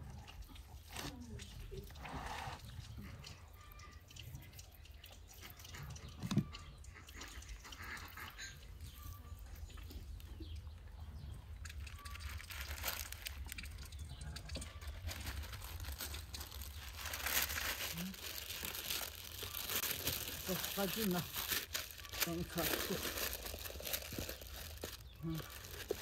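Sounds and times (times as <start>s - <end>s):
faint bird chirps: 8.2s - 12.6s
wet squishing of hands on meat: 11.5s - 26.0s.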